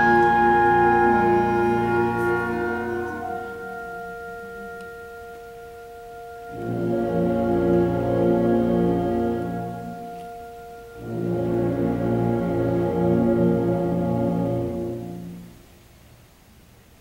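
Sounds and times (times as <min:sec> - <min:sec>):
wind band playing: 0:00.0 - 0:15.9.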